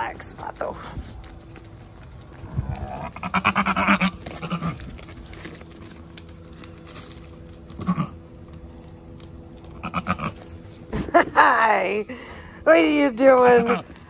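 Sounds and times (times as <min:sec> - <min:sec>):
goats bleating: 0:02.8 - 0:05.0, 0:09.7 - 0:10.5.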